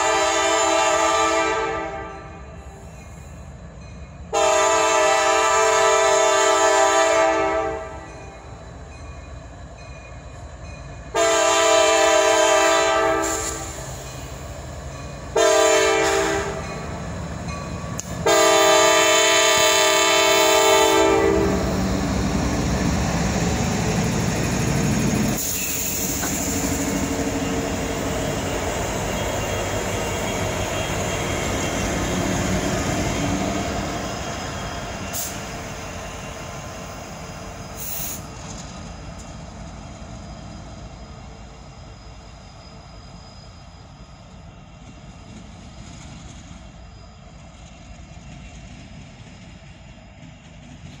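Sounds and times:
diesel locomotives rumbling: 0:00.0 - 0:51.0.

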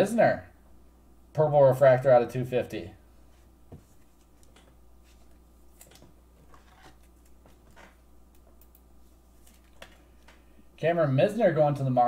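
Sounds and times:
low steady hum: 0:00.0 - 0:12.0
trading card clicks and rustles: 0:04.0 - 0:10.4.

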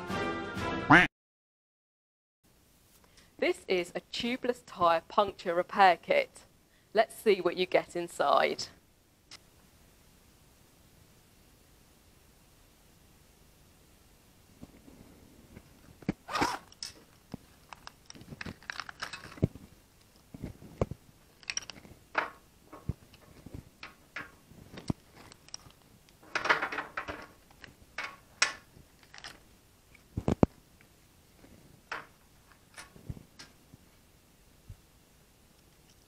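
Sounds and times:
zipper unzipping: 0:16.2 - 0:16.7
paper and plastic rustling: 0:17.0 - 0:22.0, 0:28.6 - 0:29.4
tools set down on metal: 0:26.2 - 0:27.4.

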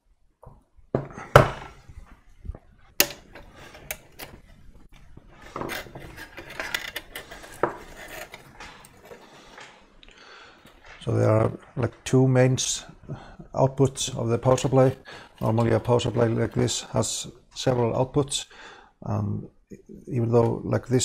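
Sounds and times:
sharp clicks and knocks: 0:02.5 - 0:09.8.

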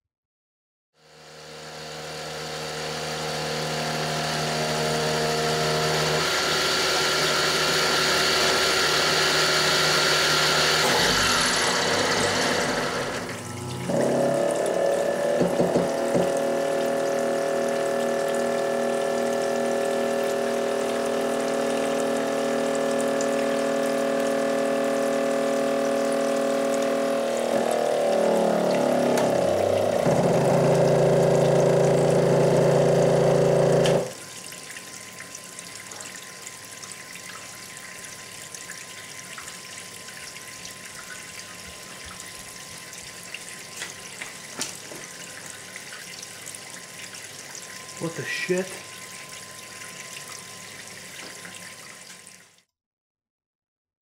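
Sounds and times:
milling machine motor running: 0:01.0 - 0:34.2
strained motor hum: 0:01.0 - 0:34.2
coolant splashing: 0:01.6 - 0:52.6.

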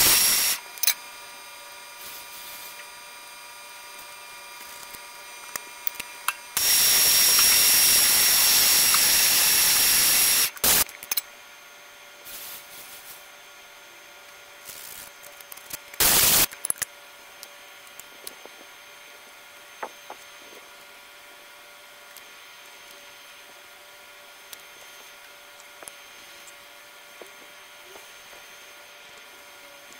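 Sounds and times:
compressed air blow gun hissing: 0:00.0 - 0:00.6, 0:06.6 - 0:10.8, 0:12.2 - 0:13.2
steady machine hum: 0:00.0 - 0:29.9.

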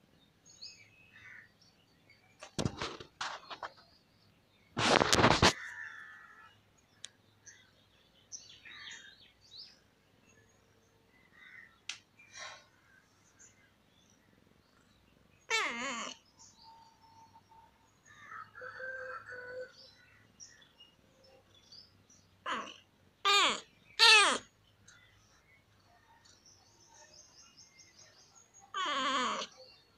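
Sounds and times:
cat meowing: 0:15.5 - 0:16.2, 0:28.7 - 0:29.5.

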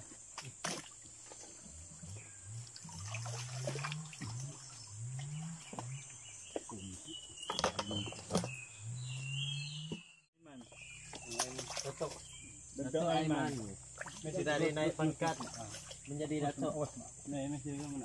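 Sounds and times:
muddy water splashing: 0:00.2 - 0:08.5, 0:10.7 - 0:12.6, 0:13.3 - 0:17.0.

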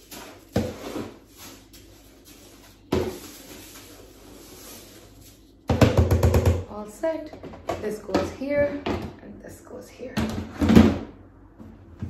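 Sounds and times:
scoop scraping cat litter: 0:00.0 - 0:05.6.

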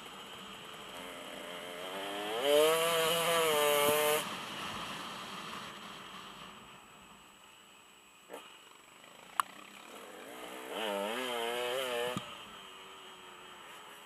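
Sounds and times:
dirt bike engine revving: 0:00.0 - 0:05.8, 0:08.3 - 0:13.7.

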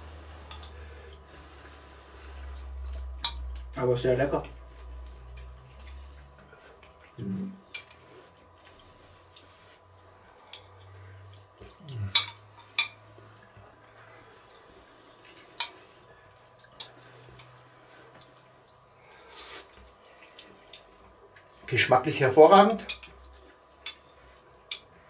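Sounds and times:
person humming mm: 0:11.8 - 0:12.3.

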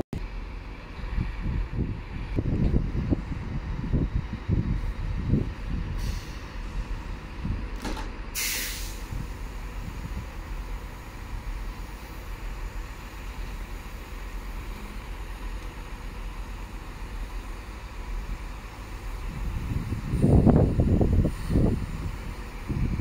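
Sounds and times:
steady low rumble: 0:00.2 - 0:23.0
air brakes hissing: 0:05.7 - 0:07.2, 0:08.3 - 0:15.4, 0:19.0 - 0:23.0.

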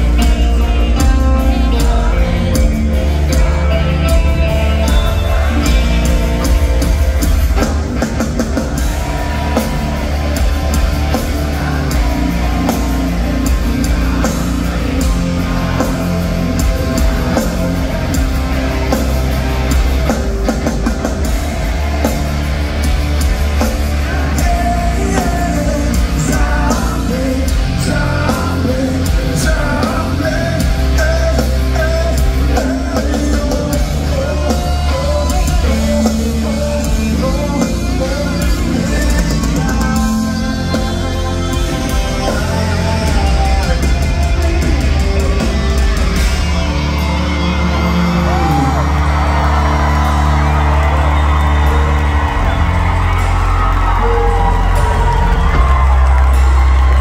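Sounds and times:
heavy rock band playing live: 0:00.0 - 0:57.0
man singing and yelling: 0:23.9 - 0:46.2.

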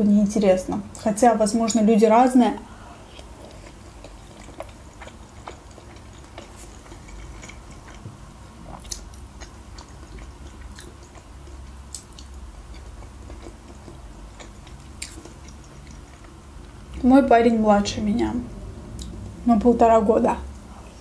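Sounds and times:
chewing soft food: 0:02.7 - 0:17.0.

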